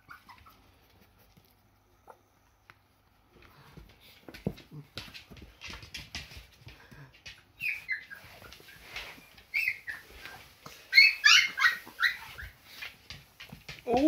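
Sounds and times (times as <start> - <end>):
puppies whimpering: 0.0 - 0.8, 7.6 - 12.6.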